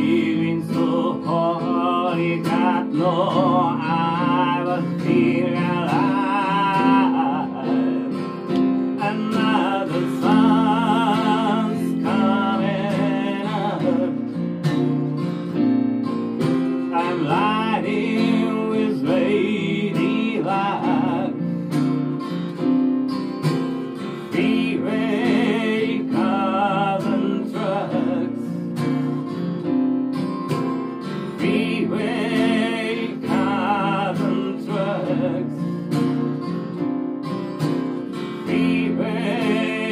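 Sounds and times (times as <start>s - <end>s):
man singing with vibrato: 0.0s - 14.5s, 16.8s - 21.7s, 24.2s - 28.7s, 31.3s - 36.0s, 38.4s - 39.9s
keyboard: 0.0s - 39.9s
strummed acoustic guitar: 0.0s - 39.9s.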